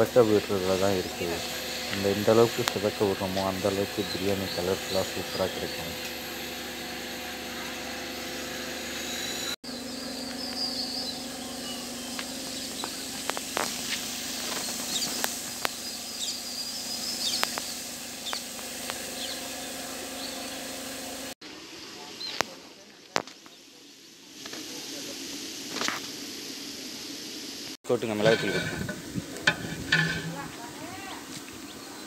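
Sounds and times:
birds chirping: 0:00.0 - 0:06.1, 0:09.6 - 0:13.6, 0:14.3 - 0:20.9
onions sizzling in oil: 0:11.6 - 0:21.8, 0:23.4 - 0:31.7.

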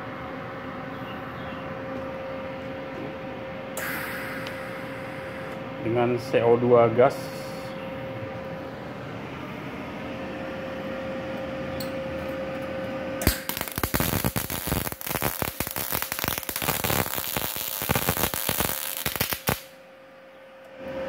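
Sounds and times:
steady tonal hum: 0:00.0 - 0:21.0
welding arc crackling: 0:13.2 - 0:19.8.

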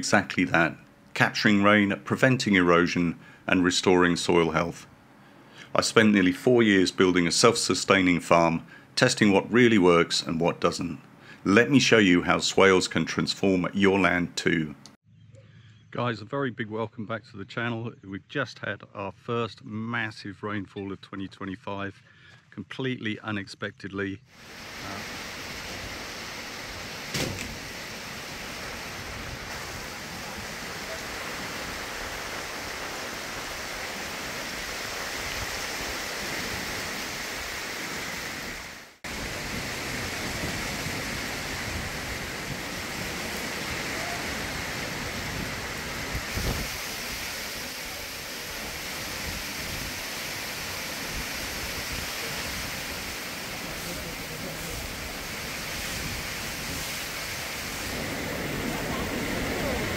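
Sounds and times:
heavy rain pouring: 0:24.4 - 0:59.9
brief thump: 0:27.1 - 0:27.6.

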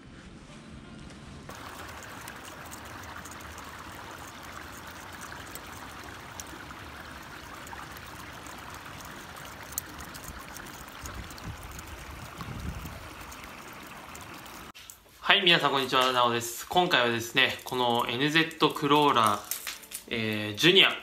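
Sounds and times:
lure splashing on water: 0:01.5 - 0:14.8
faint ticks: 0:01.5 - 0:15.0.

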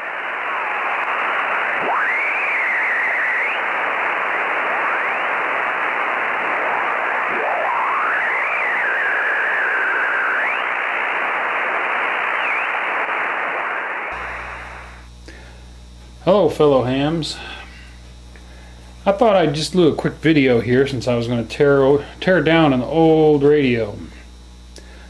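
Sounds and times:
radio static hiss: 0:00.0 - 0:25.0
swooping whistling tones: 0:01.8 - 0:04.0, 0:12.0 - 0:13.0.

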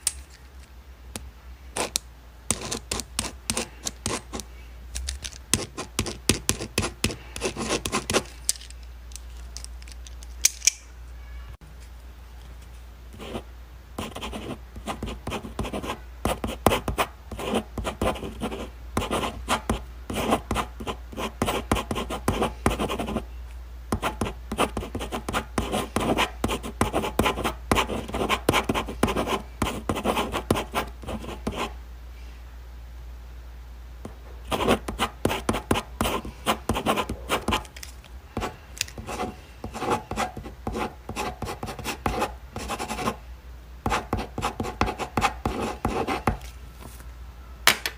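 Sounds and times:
pen scratching on paper: 0:01.8 - 0:04.4, 0:05.6 - 0:08.2, 0:14.0 - 0:23.2, 0:24.0 - 0:31.7, 0:34.5 - 0:37.6, 0:38.4 - 0:43.2, 0:43.9 - 0:46.4.

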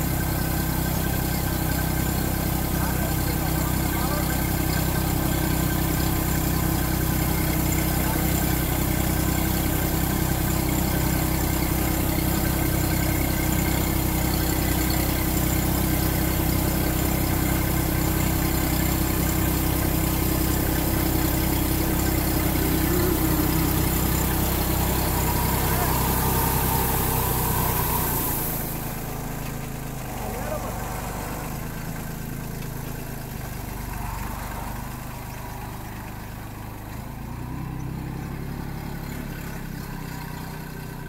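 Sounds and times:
tractor diesel engine drone: 0:00.0 - 0:41.0
fan rushing air: 0:22.0 - 0:29.3.

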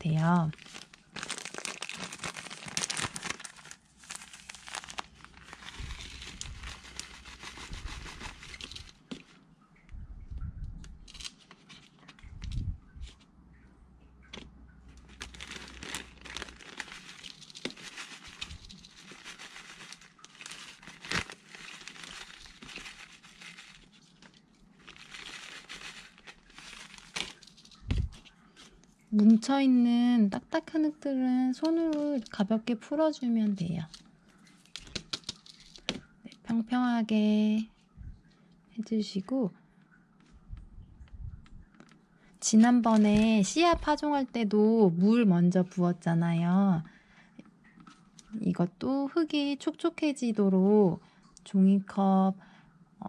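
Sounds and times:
plastic bag crinkling: 0:00.0 - 0:09.2, 0:15.0 - 0:28.3, 0:33.8 - 0:36.0, 0:42.5 - 0:44.0.

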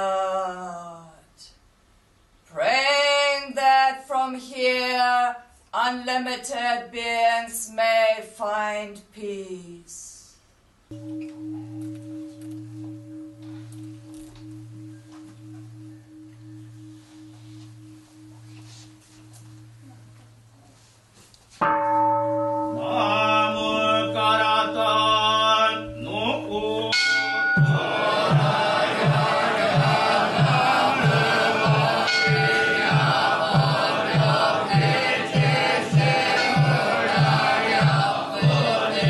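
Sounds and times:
deep temple bell ringing: 0:10.9 - 0:20.7, 0:21.6 - 0:38.7
higher sustained tones: 0:10.9 - 0:21.0, 0:21.7 - 0:38.9.

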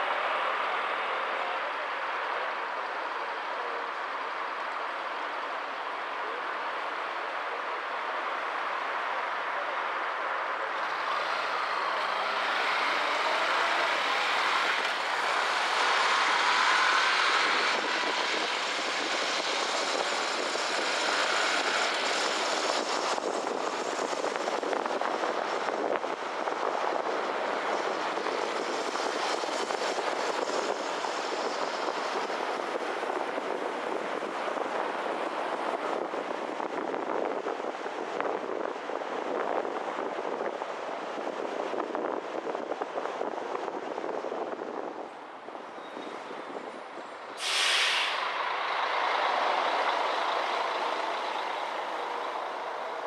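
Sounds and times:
car road noise: 0:00.0 - 0:53.0
city street traffic: 0:00.0 - 0:53.0
engine rising in pitch: 0:10.8 - 0:23.2.

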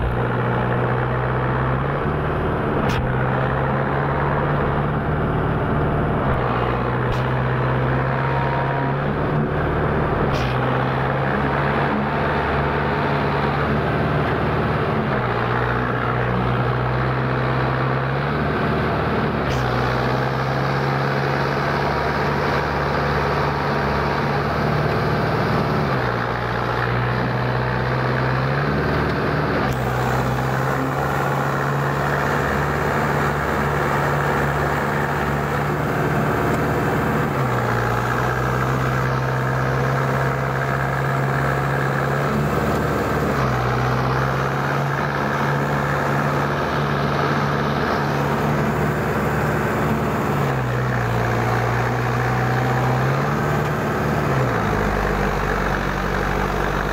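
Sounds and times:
tractor engine under load: 0:00.0 - 0:56.9.

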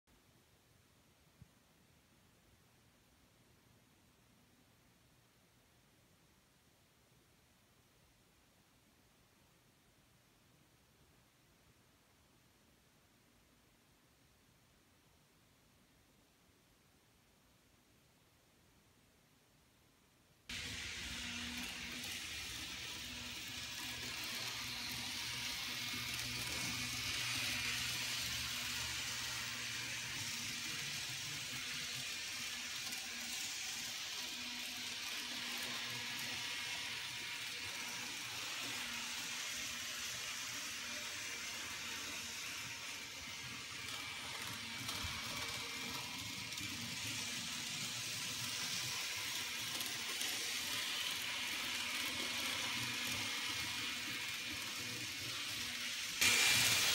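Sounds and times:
model locomotive motors whirring: 0:20.5 - 0:56.9
wheels rolling on track: 0:20.5 - 0:56.9.

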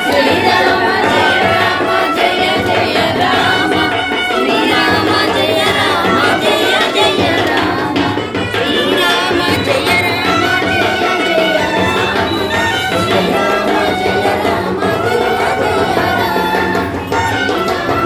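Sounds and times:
hand drum percussion: 0:00.0 - 0:18.0
person singing devotional song: 0:00.0 - 0:18.0.

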